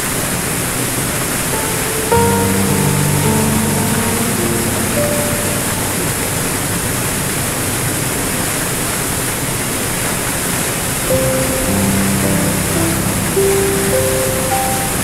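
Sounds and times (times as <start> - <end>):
piano notes: 1.0 - 8.6, 11.1 - 15.0
waterfall rushing over rocks: 1.1 - 15.0.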